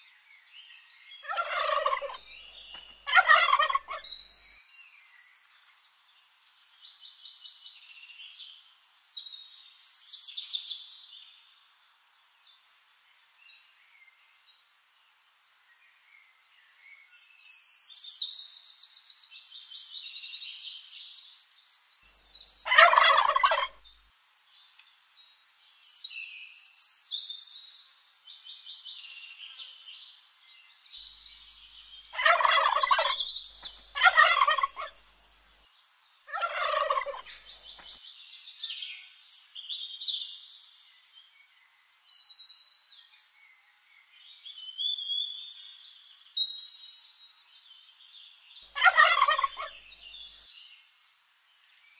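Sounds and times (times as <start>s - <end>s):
turkeys gobbling: 1.2s - 4.1s, 22.6s - 23.8s, 32.1s - 35.0s, 36.3s - 37.8s, 48.8s - 49.8s
high-pitched chirping: 32.2s - 35.0s.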